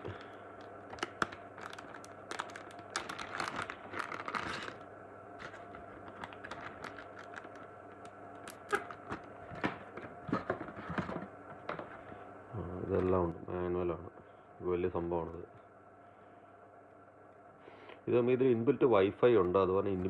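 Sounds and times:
plastic bag crinkling: 0.0s - 4.8s, 5.4s - 9.6s.

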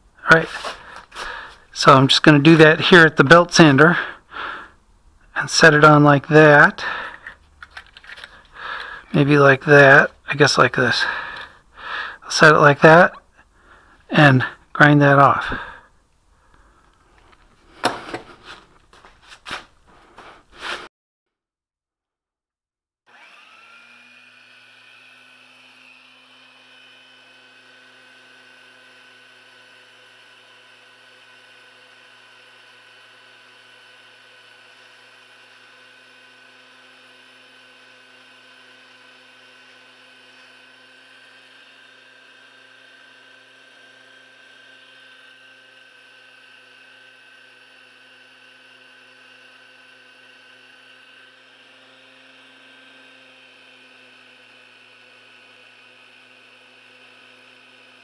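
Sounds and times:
belt sander motor whining: 0.2s - 20.7s, 23.1s - 58.0s.

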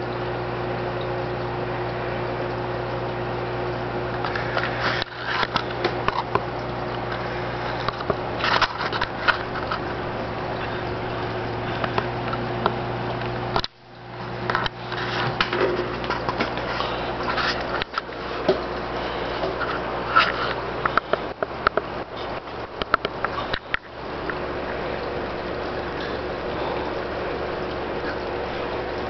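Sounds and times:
aquarium pump hum and hiss: 0.0s - 29.0s
clicks and crackles: 4.1s - 26.9s.

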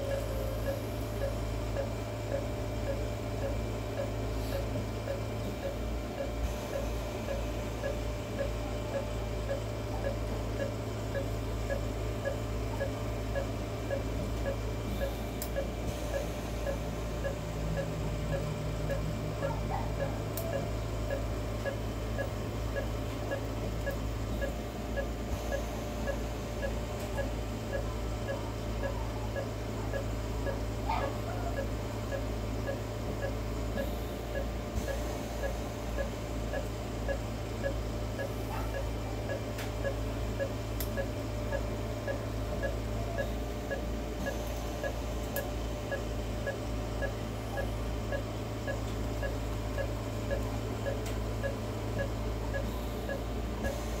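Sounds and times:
patient monitor beeping: 0.0s - 54.0s
steady low hum: 0.0s - 54.0s.

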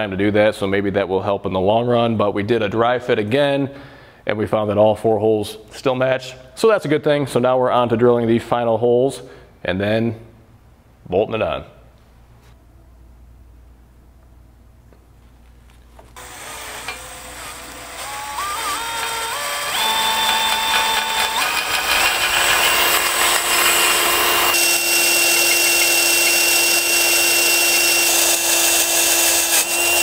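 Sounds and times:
cordless drill motor boring: 16.2s - 30.0s.

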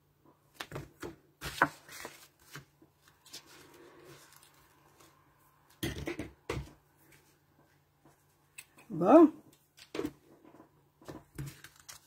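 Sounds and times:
paper rustling: 0.6s - 5.3s, 11.0s - 12.0s.

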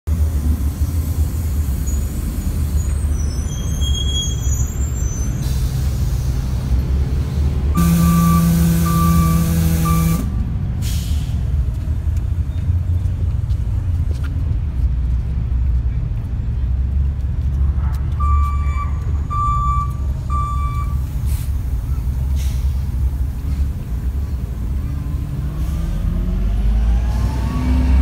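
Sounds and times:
bus engine rumble: 0.0s - 28.0s
air hissing from brakes: 0.3s - 11.6s, 20.8s - 26.2s
bus door opening hiss: 0.5s - 6.7s, 7.8s - 11.5s, 21.0s - 23.9s
high brake squeal: 1.6s - 6.4s, 7.8s - 11.3s
burst of air with pitched hum: 7.8s - 10.3s.

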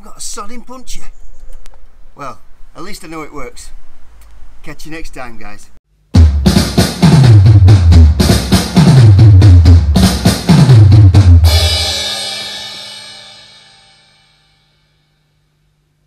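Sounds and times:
drum kit beat: 6.1s - 14.1s
cymbal crash: 6.2s - 15.1s.

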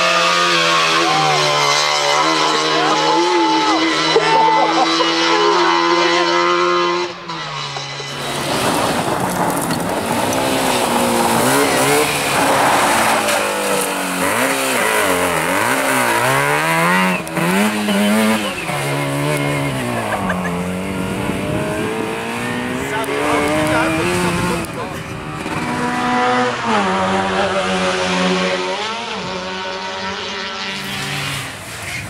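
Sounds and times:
rally car engine revving: 0.0s - 32.0s
tyres on gravel: 7.2s - 20.8s.

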